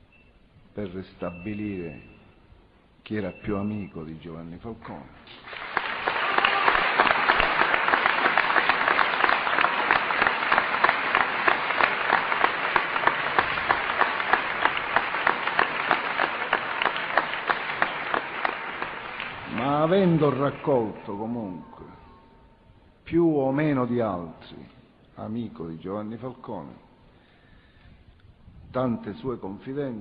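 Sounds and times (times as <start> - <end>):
audience applauding: 5.3 - 21.4.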